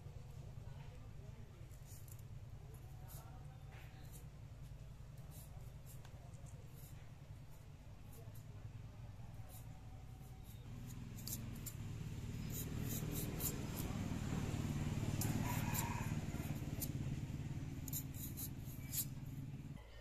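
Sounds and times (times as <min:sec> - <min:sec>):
peeler scraping potato skin: 0:09.4 - 0:19.5.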